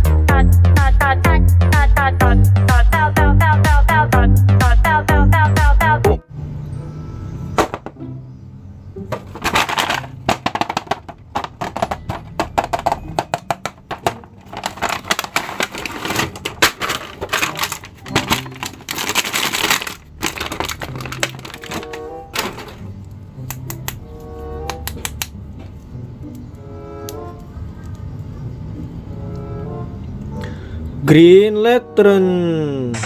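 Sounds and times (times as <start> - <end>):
soft background music: 0.0 - 9.4, 11.7 - 33.0
plastic packaging crinkling: 9.2 - 22.8.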